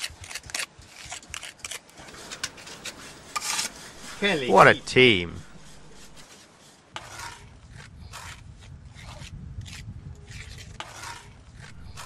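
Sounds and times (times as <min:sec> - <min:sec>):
trowel scraping mortar on stone: 0:00.0 - 0:04.5, 0:05.4 - 0:07.5, 0:09.0 - 0:12.0.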